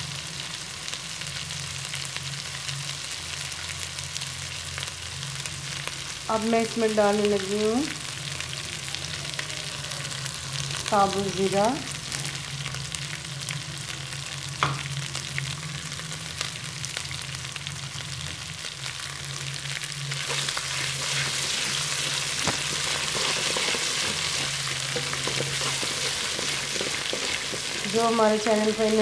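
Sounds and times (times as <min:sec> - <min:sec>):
spices sizzling in hot oil: 0:00.0 - 0:29.0
wooden spatula stirring: 0:20.3 - 0:28.5.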